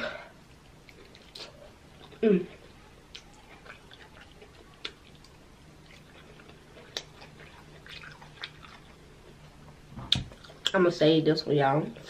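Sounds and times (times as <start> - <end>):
person chewing: 0.6 - 10.8.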